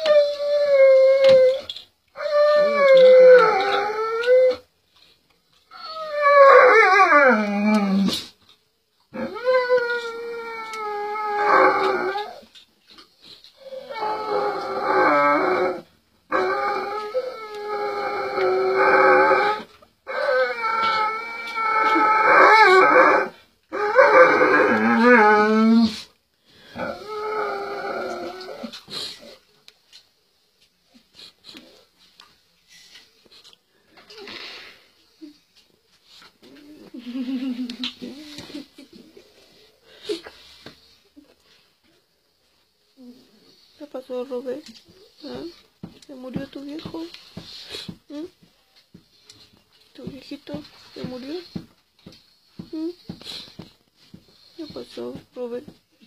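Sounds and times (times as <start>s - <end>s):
dog howling: 2.2s - 4.6s, 9.2s - 12.5s, 13.6s - 26.0s.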